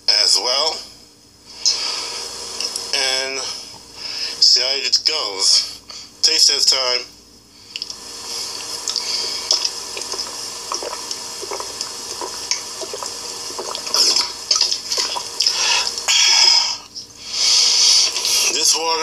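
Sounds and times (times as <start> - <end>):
water running and splashing: 8.0 - 16.1.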